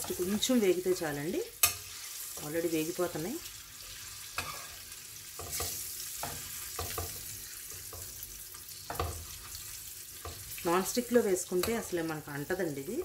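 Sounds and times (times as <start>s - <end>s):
eggs sizzling in pan: 0.0s - 13.0s
metal spoon scraping pan: 1.6s - 2.5s, 4.0s - 7.2s.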